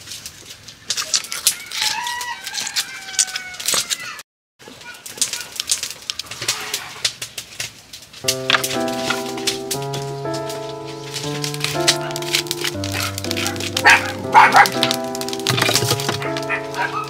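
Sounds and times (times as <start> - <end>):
birds calling: 11.9 - 15.1, 15.7 - 17.0.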